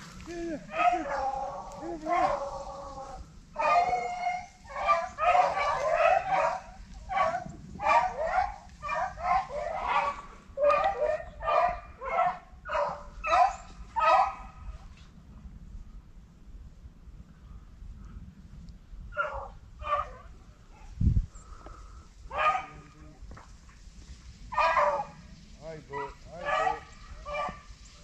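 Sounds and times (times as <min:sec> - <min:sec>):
hounds yelping and baying: 0:00.7 - 0:14.8, 0:19.2 - 0:21.0, 0:22.2 - 0:22.9, 0:24.4 - 0:28.0.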